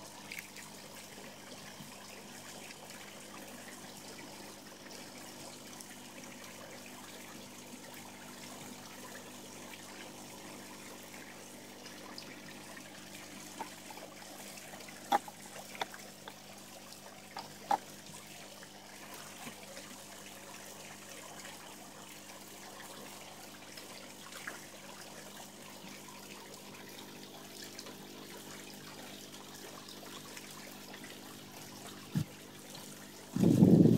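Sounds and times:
water trickling into pond: 0:00.0 - 0:33.9.

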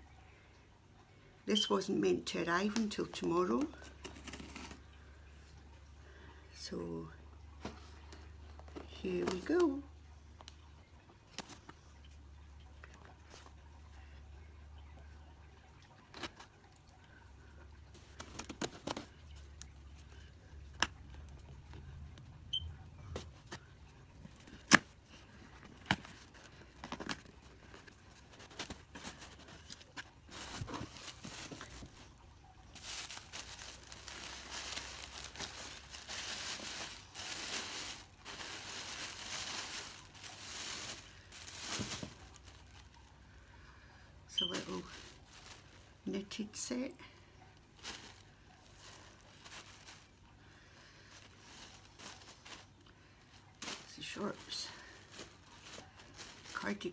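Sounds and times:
tissue paper rustling: 0:02.7 - 0:04.9, 0:23.0 - 0:43.2, 0:44.4 - 0:46.9, 0:47.7 - 0:50.4, 0:51.0 - 0:56.9.

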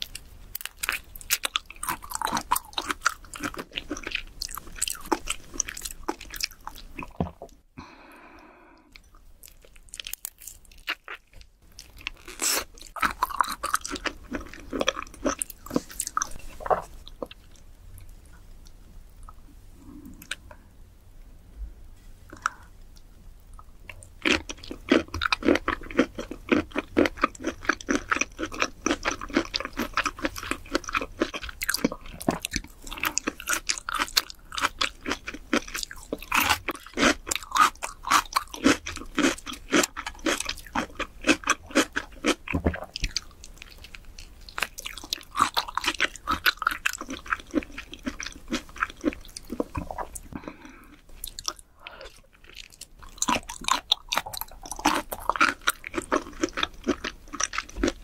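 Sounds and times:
chewing with mouth clicks: 0:00.0 - 0:07.6, 0:22.3 - 0:58.0.

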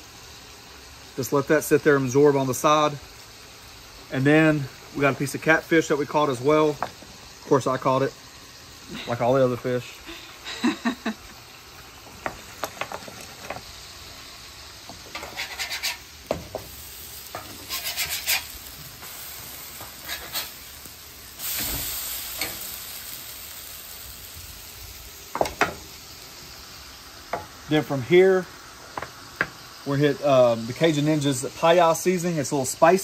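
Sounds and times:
food sizzling in oil on griddle: 0:00.0 - 0:33.0
metal spatula scraping steel: 0:15.1 - 0:16.1, 0:17.4 - 0:18.5.

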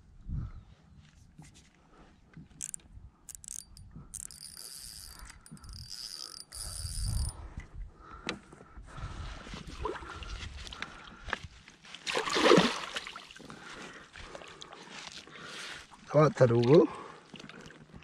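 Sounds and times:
fishing reel ratcheting: 0:02.5 - 0:07.4
fishing reel high whirr: 0:02.6 - 0:07.4.

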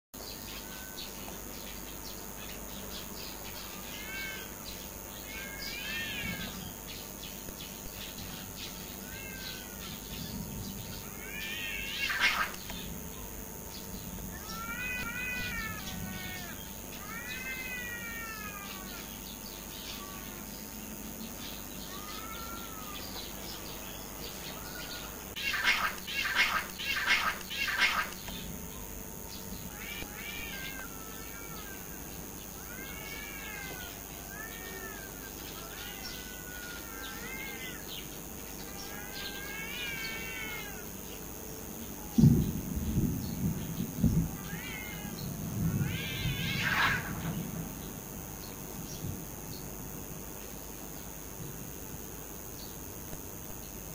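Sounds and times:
cats yowling in a fight: 0:00.4 - 0:01.5, 0:03.3 - 0:07.5, 0:08.2 - 0:13.4, 0:14.2 - 0:28.2, 0:29.0 - 0:42.8, 0:43.4 - 0:48.5
cats screeching: 0:00.6 - 0:01.5, 0:03.3 - 0:06.8, 0:08.2 - 0:12.8, 0:14.3 - 0:20.8, 0:21.6 - 0:28.4, 0:29.6 - 0:41.0, 0:44.0 - 0:47.5.

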